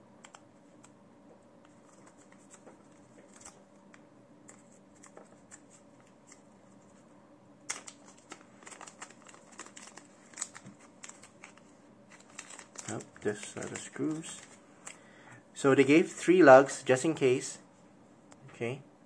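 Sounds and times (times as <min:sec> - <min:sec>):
packet rustling and crinkling: 0:01.7 - 0:03.6, 0:07.7 - 0:15.0.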